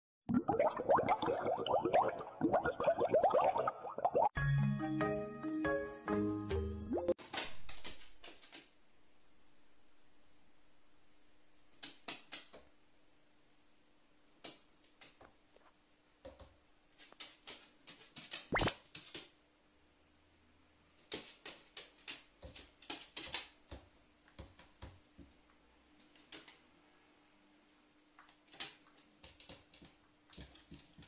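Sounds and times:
bird claws tapping wooden floor: 0:07.3 - 0:08.7, 0:11.7 - 0:12.7, 0:16.2 - 0:19.4, 0:21.0 - 0:26.6, 0:28.2 - 0:31.0.

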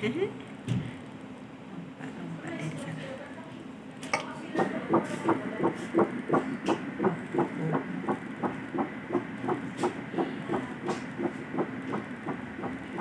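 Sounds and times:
doppler heartbeat whooshing: 0:04.6 - 0:13.0.

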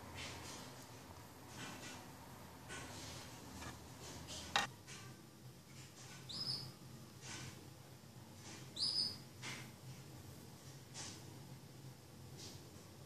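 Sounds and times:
canary chirps: 0:06.2 - 0:06.8, 0:08.6 - 0:09.3.

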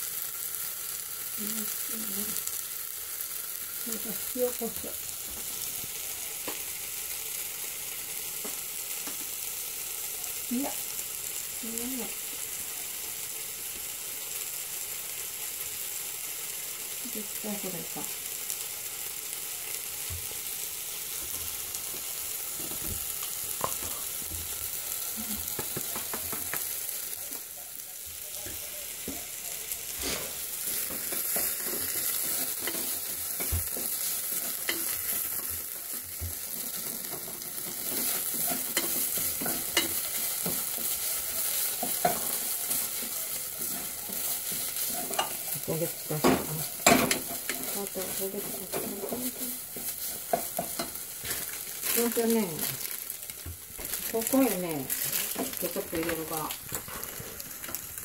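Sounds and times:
food sizzling in a frying pan: 0:00.0 - 0:58.0
spatula scraping pan: 0:29.9 - 0:51.6.

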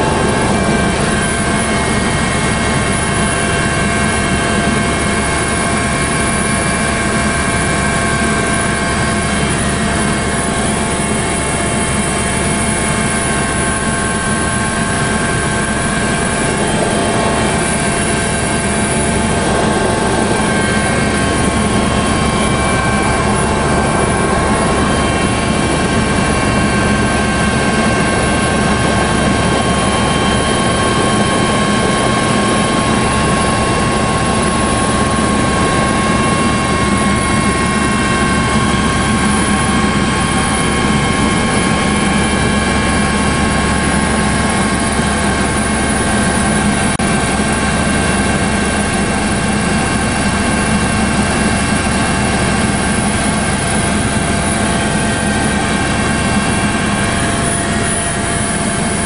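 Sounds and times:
whining tones: 0:00.0 - 0:03.6, 0:09.4 - 0:38.8
helicopter engine and rotor drone: 0:00.0 - 0:59.0.

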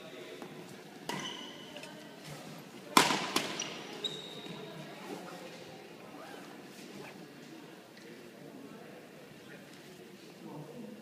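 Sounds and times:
shoes squeaking on wooden floor: 0:03.5 - 0:05.5.

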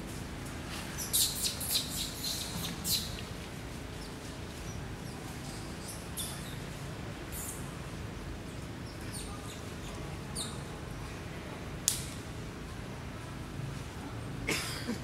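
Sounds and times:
low background noise: 0:00.0 - 0:15.0
bird chirping: 0:01.0 - 0:03.1.

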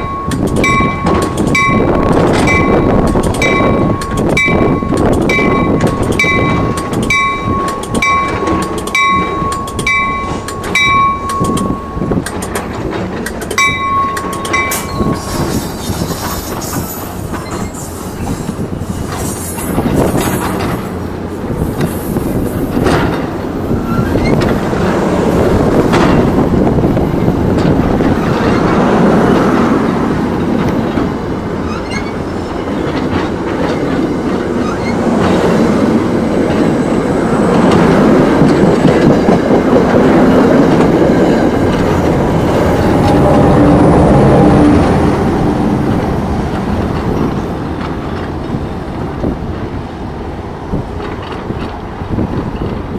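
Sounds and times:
train bell ringing: 0:00.0 - 0:12.7, 0:13.5 - 0:15.6
train wheels clattering: 0:00.0 - 0:52.9.

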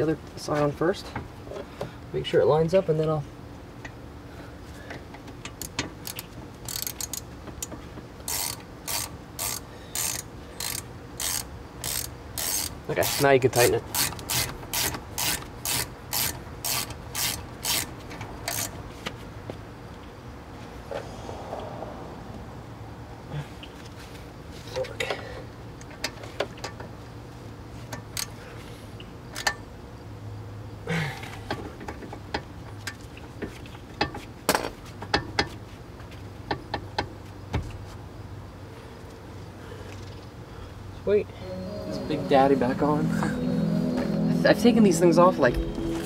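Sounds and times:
ratchet wrench ratcheting: 0:05.5 - 0:13.3, 0:13.9 - 0:18.8.

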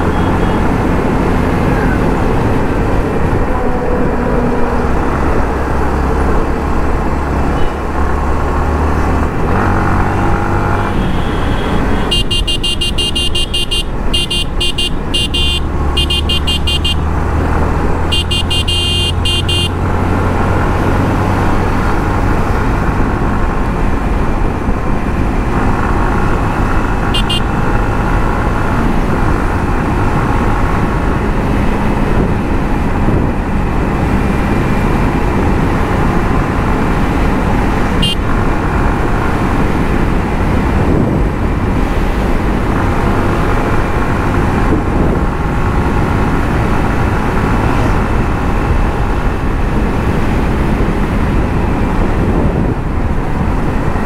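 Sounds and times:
vehicle horn honking: 0:00.0 - 0:00.7, 0:10.8 - 0:17.1, 0:18.1 - 0:19.8, 0:27.1 - 0:27.6, 0:38.0 - 0:38.2
wind on microphone: 0:00.0 - 0:11.1, 0:19.9 - 0:54.0
motorcycle engine cruising: 0:00.0 - 0:54.0.

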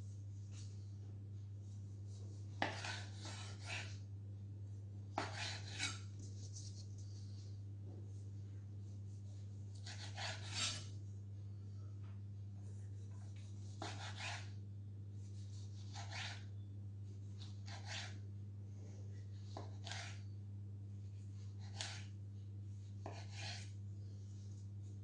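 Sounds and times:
steady low hum: 0:00.0 - 0:25.0
knife slicing tomato on wooden board: 0:02.5 - 0:04.0, 0:05.1 - 0:06.2, 0:09.7 - 0:10.9, 0:13.8 - 0:14.5, 0:15.4 - 0:16.5, 0:17.4 - 0:18.2, 0:19.5 - 0:20.3, 0:21.5 - 0:22.2, 0:23.0 - 0:23.8.

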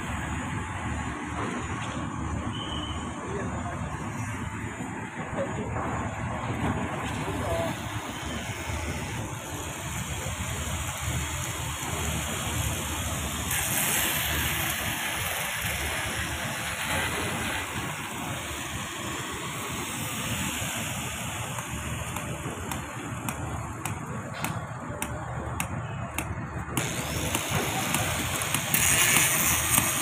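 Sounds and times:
building site machinery noise: 0:00.0 - 0:30.0
sharp knocks or clicks: 0:21.6 - 0:30.0.

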